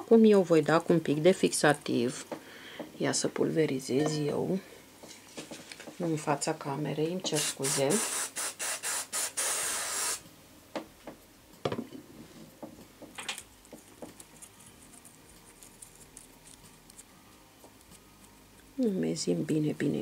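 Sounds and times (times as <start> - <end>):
spray hissing: 7.4 - 10.2.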